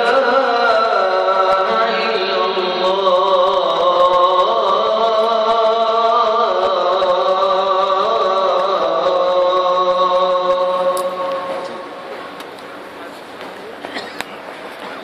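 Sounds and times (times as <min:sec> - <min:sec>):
call to prayer over loudspeakers: 0:00.0 - 0:12.9.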